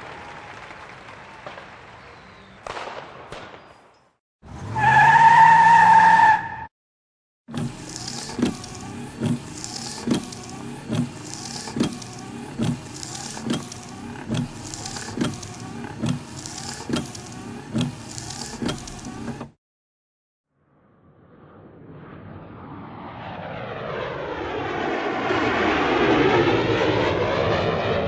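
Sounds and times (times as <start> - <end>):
truck engine: 7.5 - 19.6
fog cannon fan and water spray: 7.6 - 19.4.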